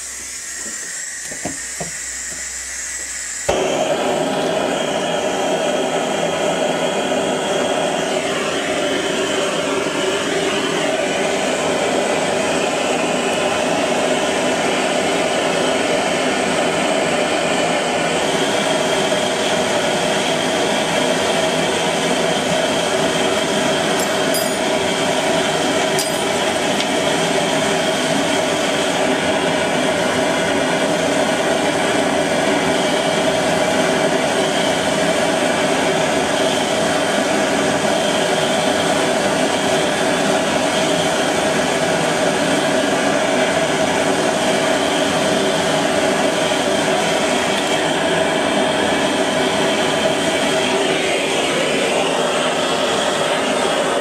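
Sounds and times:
gas torch burning: 0:00.0 - 0:54.0
light metal clinks: 0:24.0 - 0:24.6.

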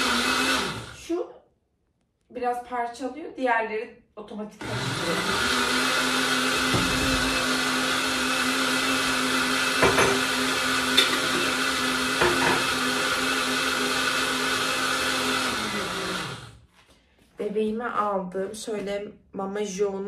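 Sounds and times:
blender running: 0:00.0 - 0:01.2, 0:04.6 - 0:16.6.

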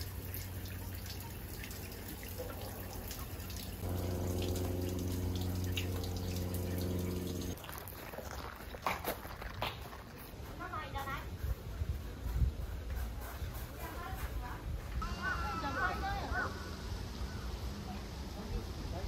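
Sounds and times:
water trickling into stone basin: 0:00.0 - 0:09.6
steady low hum: 0:03.7 - 0:07.6.

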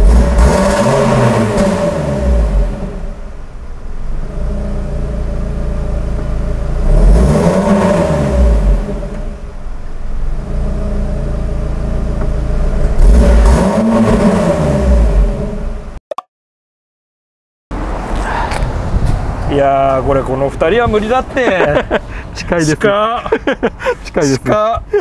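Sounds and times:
car engine idling and revving: 0:00.0 - 0:16.0.

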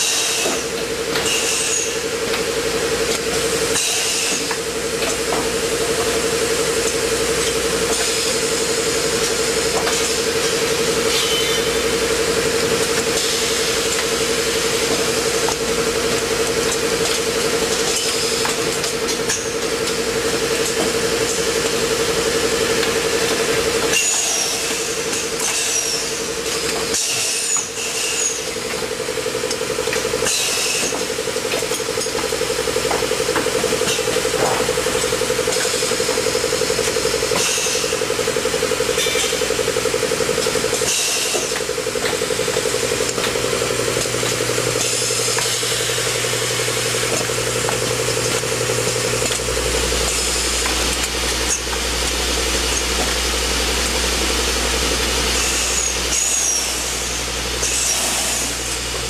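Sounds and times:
pneumatic air hisses: 0:00.0 - 0:02.1, 0:03.6 - 0:04.6, 0:07.4 - 0:15.5, 0:23.9 - 0:28.6, 0:30.2 - 0:31.2, 0:33.2 - 0:38.1, 0:38.8 - 0:43.8, 0:44.5 - 0:59.0
machine hum: 0:00.0 - 0:59.0.

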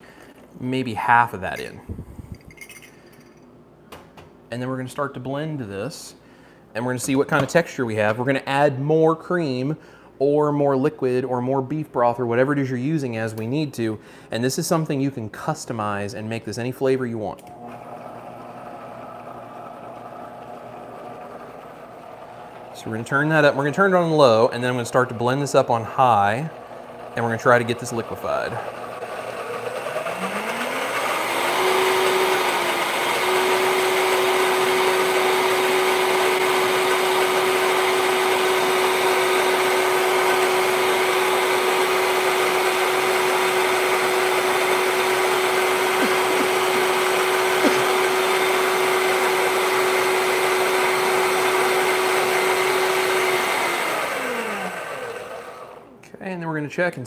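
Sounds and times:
blender motor whining: 0:17.5 - 0:23.7, 0:26.6 - 0:55.9.

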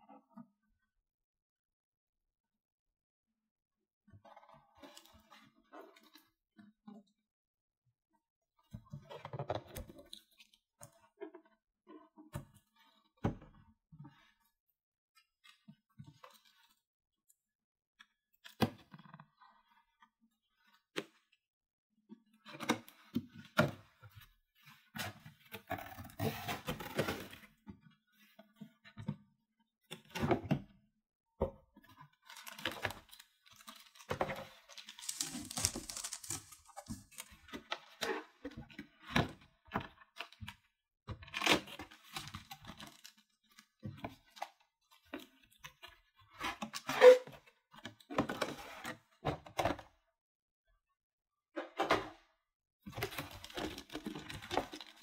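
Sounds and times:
packaging rustling and tearing: 0:33.6 - 0:37.4, 0:53.2 - 0:55.0.

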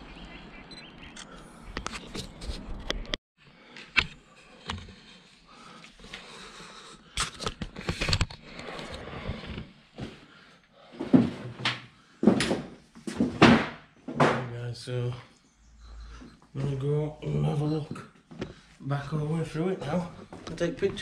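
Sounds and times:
footsteps on stairs: 0:19.8 - 0:21.0
scuffing and handling noise: 0:19.8 - 0:21.0.

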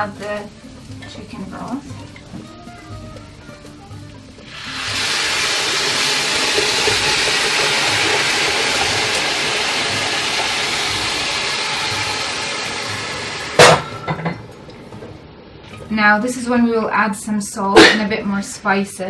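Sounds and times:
broth sizzling in hot pot: 0:00.0 - 0:14.0.

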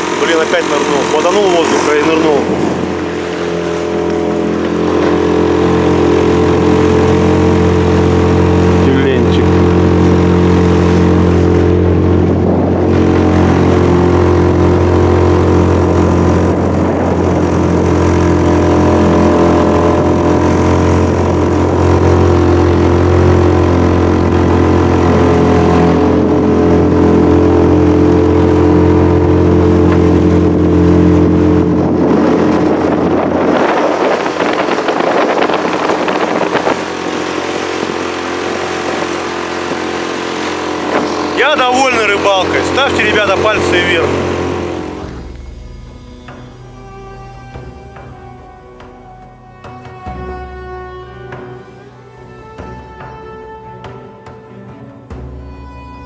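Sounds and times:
wind noise: 0:00.0 - 0:41.4
water noise: 0:00.0 - 0:54.0
boat motor running: 0:00.0 - 0:56.0.

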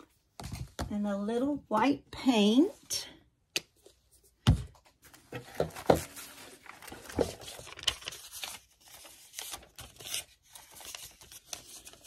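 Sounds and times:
paper rustling: 0:04.9 - 0:12.0.

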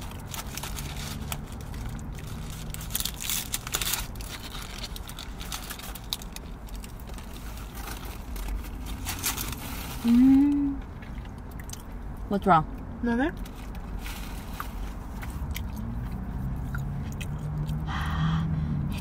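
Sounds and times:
crunching fried food: 0:00.0 - 0:09.6, 0:13.4 - 0:17.8
wrapper crinkling: 0:00.0 - 0:10.5.

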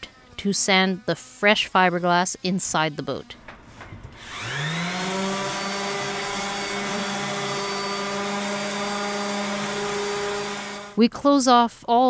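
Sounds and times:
power sander sanding: 0:04.1 - 0:11.0.

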